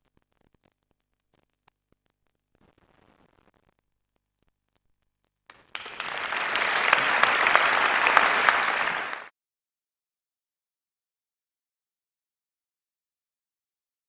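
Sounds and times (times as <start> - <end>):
audience applauding: 5.5 - 9.3.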